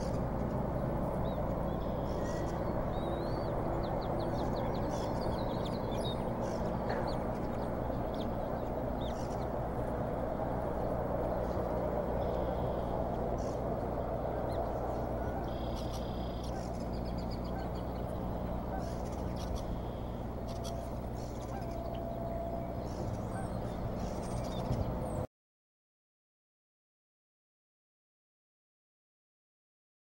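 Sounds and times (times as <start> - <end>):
low electrical hum: 0.0 - 25.3
faint bird chirps: 14.3 - 25.0.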